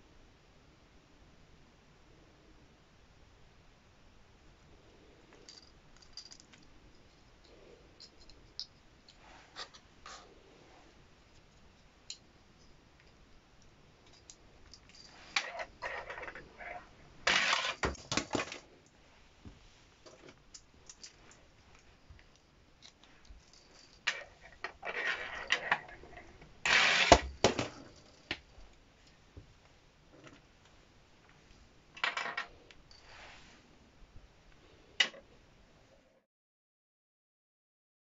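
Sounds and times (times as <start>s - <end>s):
plastic toy clicking and clattering: 17.3s - 18.6s.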